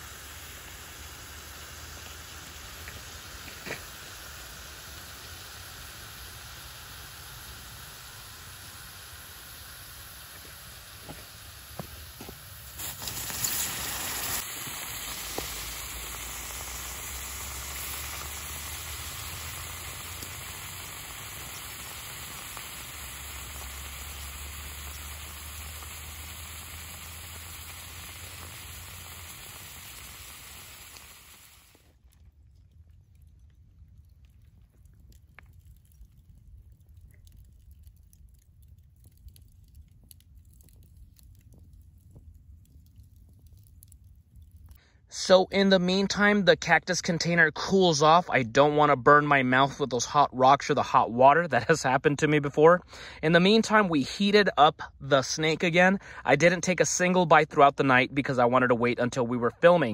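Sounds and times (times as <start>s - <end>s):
hot stones sizzling in water: 0.0s - 32.2s, 34.1s - 44.8s
campfire crackling: 0.0s - 59.9s.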